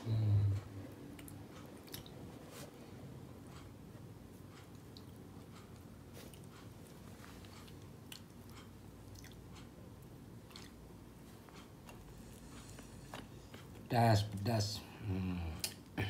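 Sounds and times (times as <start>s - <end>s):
person chewing: 0.4s - 2.7s, 4.4s - 13.9s.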